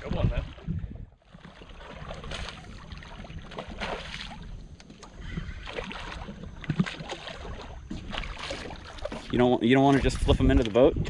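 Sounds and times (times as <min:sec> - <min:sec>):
wind noise on microphone: 0:00.0 - 0:01.2, 0:02.0 - 0:11.0
fish splashing at the surface: 0:01.3 - 0:04.6, 0:05.6 - 0:09.3.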